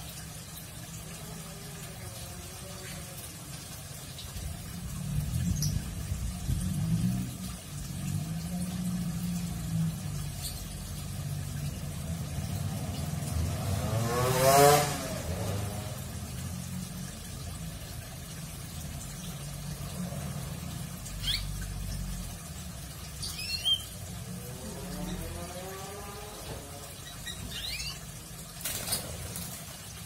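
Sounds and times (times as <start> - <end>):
low traffic hum: 0.0 - 30.0
motor vehicle passing: 4.8 - 29.7
canary chirps: 21.2 - 21.6, 23.2 - 24.0, 27.0 - 28.0.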